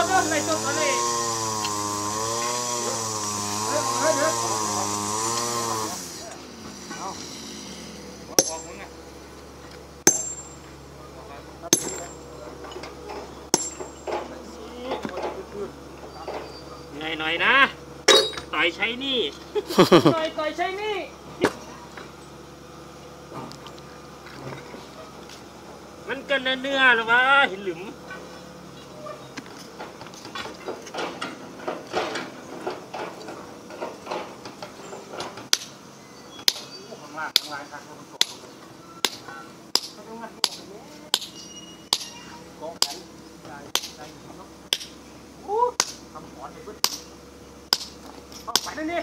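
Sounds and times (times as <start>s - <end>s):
sledgehammer striking stone: 8.4s - 8.8s, 10.0s - 10.6s, 11.7s - 12.2s, 13.5s - 14.1s, 18.1s - 18.5s.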